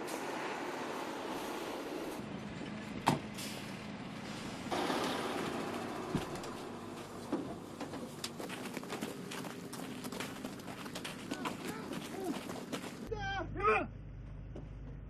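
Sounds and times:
truck engine running: 0:00.0 - 0:15.0
quick footsteps: 0:05.7 - 0:13.1.

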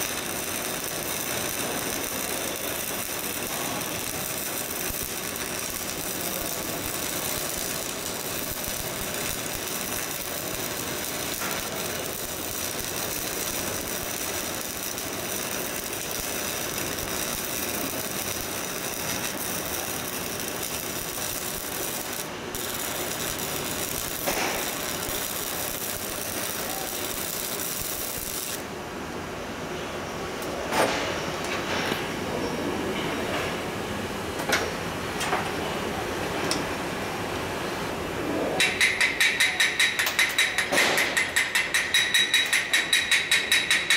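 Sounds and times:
welding arc crackling: 0:00.0 - 0:28.8.

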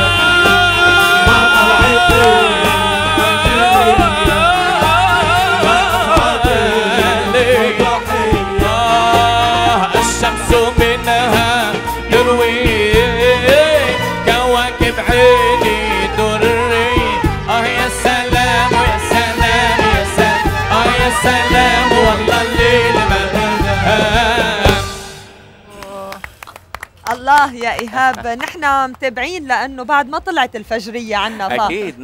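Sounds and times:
man singing ornamented melody: 0:00.0 - 0:26.2
instrumental accompaniment: 0:00.0 - 0:30.8.

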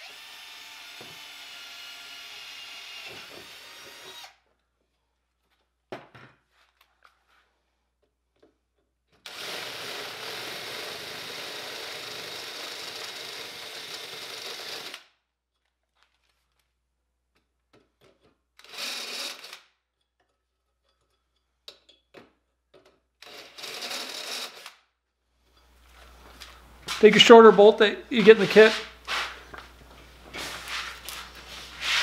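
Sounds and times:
cordless drill boring through metal: 0:00.0 - 0:04.4, 0:09.3 - 0:15.0, 0:18.6 - 0:19.6.

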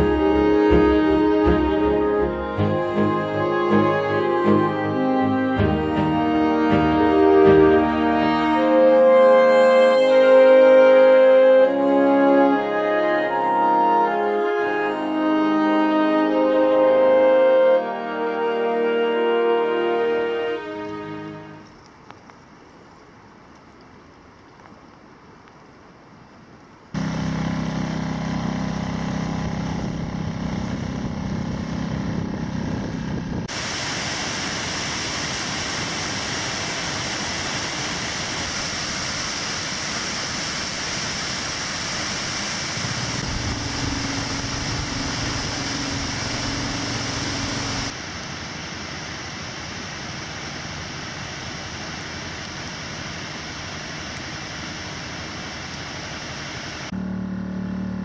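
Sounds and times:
outboard motor humming: 0:27.0 - 0:33.5, 0:42.8 - 0:47.9, 0:56.9 - 0:58.0
waterfalls rushing: 0:33.5 - 0:56.9.

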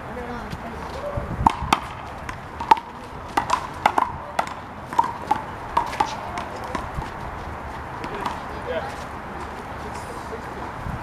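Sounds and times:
handball slapping and rebounding: 0:01.4 - 0:07.1.

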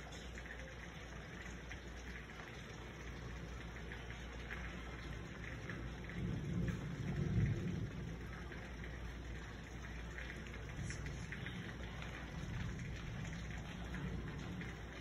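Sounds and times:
steady rain falling: 0:00.0 - 0:15.0
low rumble of thunder: 0:05.0 - 0:15.0.

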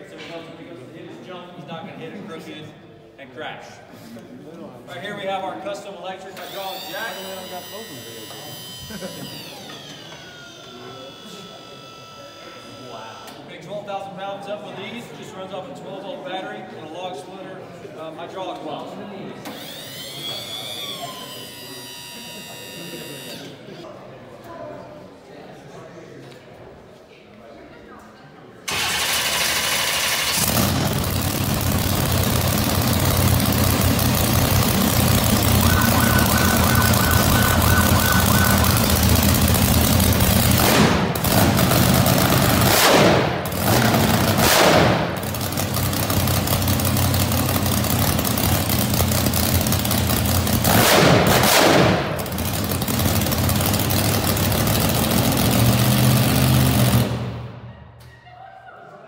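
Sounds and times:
loud truck engine revving: 0:30.3 - 0:45.8.

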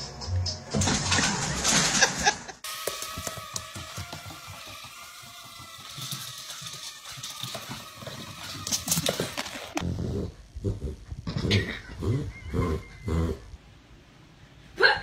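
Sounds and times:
dog claws clicking on hard floor: 0:05.8 - 0:09.8
small dog growling: 0:09.8 - 0:13.5.

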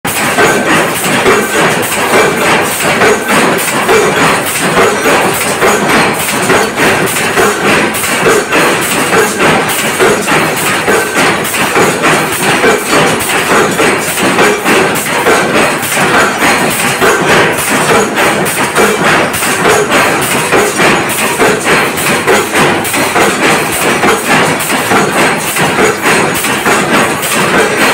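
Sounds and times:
loud machine noise: 0:00.1 - 0:27.9
power press metal strokes: 0:00.1 - 0:27.9.

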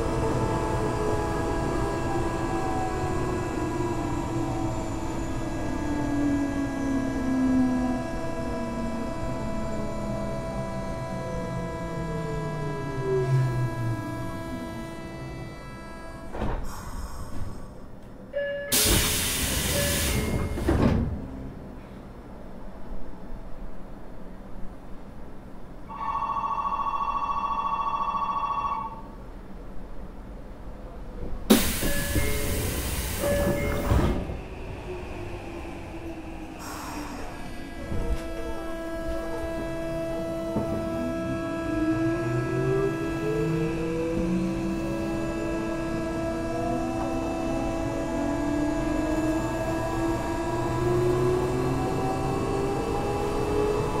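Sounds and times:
subway train motor whine: 0:00.0 - 0:54.0
train doors closing thud: 0:16.3 - 0:17.6, 0:18.7 - 0:21.3, 0:31.2 - 0:34.5, 0:39.3 - 0:41.0
electric bell ringing: 0:25.9 - 0:29.0
wheels rumbling on track: 0:29.3 - 0:54.0.

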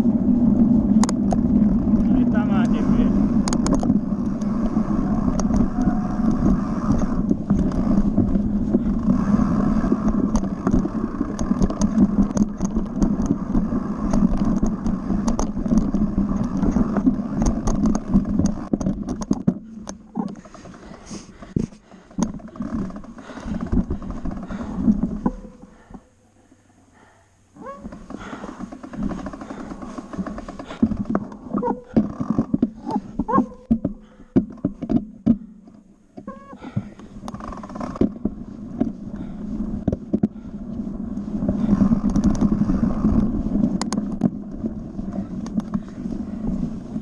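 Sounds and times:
tyres rumbling on dirt: 0:00.0 - 0:26.0, 0:27.6 - 0:35.5, 0:36.3 - 0:47.0
bike rattling and knocking: 0:00.0 - 0:26.1, 0:27.6 - 0:47.0
wind: 0:00.0 - 0:47.0.

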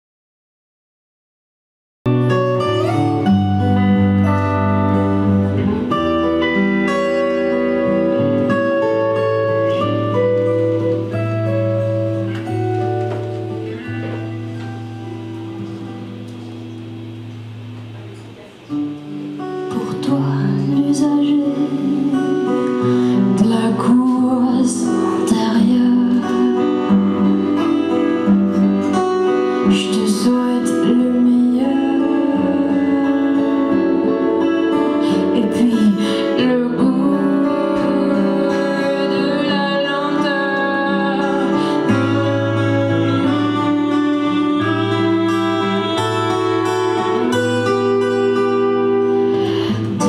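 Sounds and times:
acoustic guitar: 0:02.1 - 0:50.0
woman singing: 0:19.5 - 0:28.2, 0:29.4 - 0:50.0.

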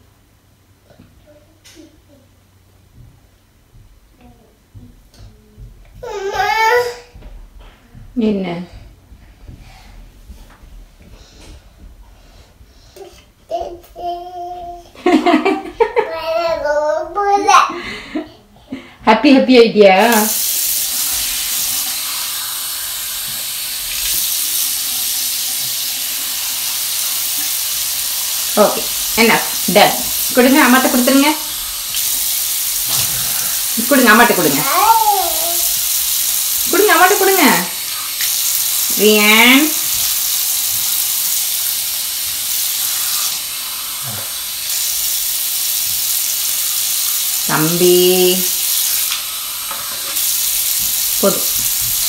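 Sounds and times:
sink faucet running: 0:15.0 - 0:16.7, 0:19.3 - 0:52.0.

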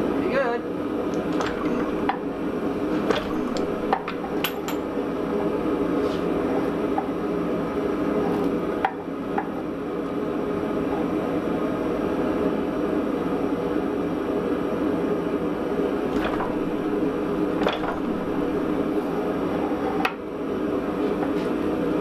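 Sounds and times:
hydraulic press mechanical drone: 0:01.2 - 0:05.0, 0:16.1 - 0:19.6.

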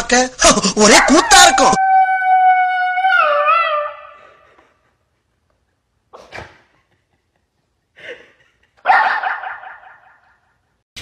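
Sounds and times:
dog howling into a microphone: 0:00.9 - 0:04.2.

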